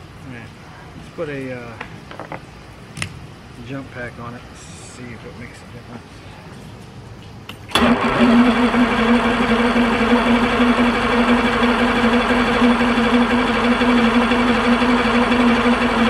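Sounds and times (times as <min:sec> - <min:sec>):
starter motor whirring: 0:07.7 - 0:16.0.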